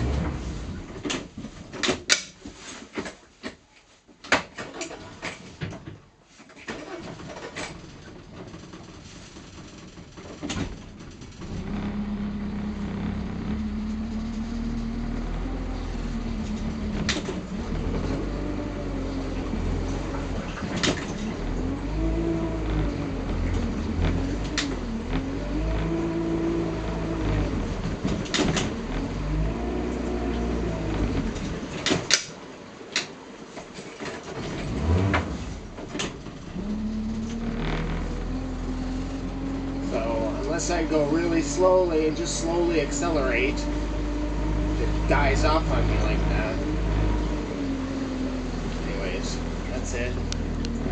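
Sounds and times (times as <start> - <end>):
boat engine humming: 0.0 - 1.1, 6.8 - 50.9
sharp clicks and knocks: 0.9 - 3.6, 7.5 - 18.6, 19.3 - 38.4.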